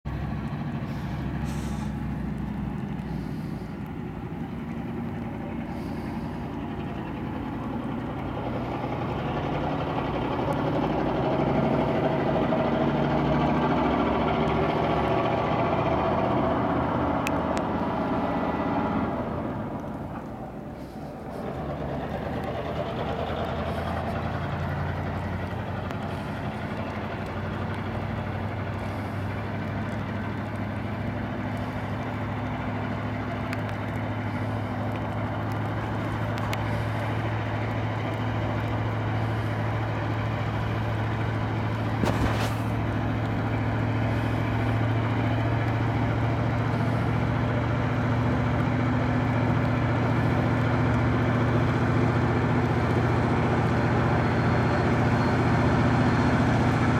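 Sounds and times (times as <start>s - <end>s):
crane diesel engine running: 0.1s - 56.9s
tyre hiss on wet road: 0.6s - 6.6s, 23.2s - 50.6s.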